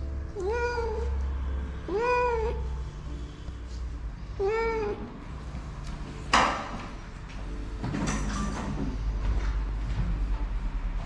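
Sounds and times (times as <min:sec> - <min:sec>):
cat meowing: 0:00.2 - 0:02.8, 0:04.4 - 0:05.2.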